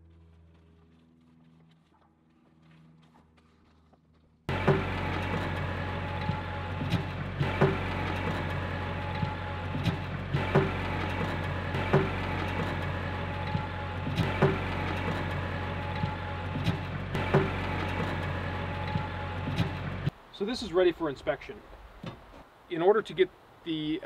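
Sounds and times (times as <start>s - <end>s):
loader knocks and clanks: 4.5s - 20.1s
tractor engine running: 4.5s - 20.2s.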